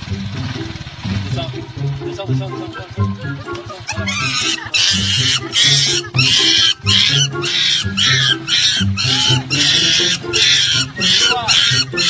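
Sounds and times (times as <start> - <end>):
background music with bass line: 0.0 - 12.0
shrill squealing animal cries: 3.9 - 12.0.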